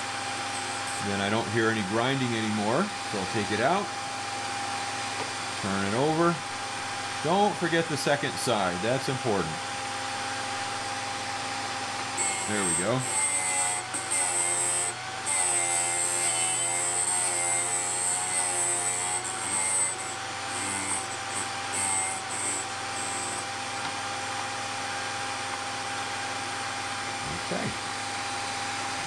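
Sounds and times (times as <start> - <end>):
drill bit grinding: 0.2 - 1.4, 12.2 - 23.5.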